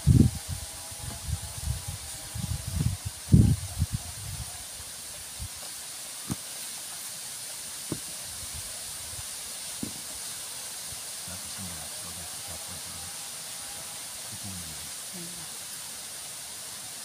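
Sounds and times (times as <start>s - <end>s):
steady high hiss: 0.0s - 17.0s
knife knocking into mangoes: 9.8s - 10.0s.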